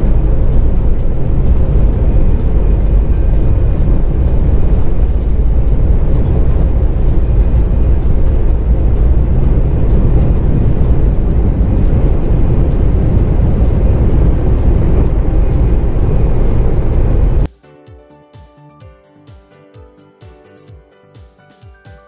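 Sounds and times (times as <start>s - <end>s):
jet engines at takeoff thrust: 0.0s - 17.5s
rushing air: 0.0s - 17.5s.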